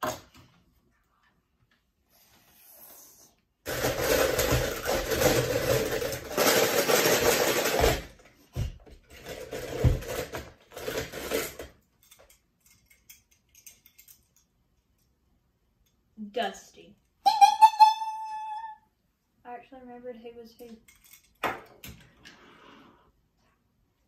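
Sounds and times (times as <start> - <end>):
toy cars rattling in plastic bowl: 3.7 - 8.2, 9.0 - 14.3.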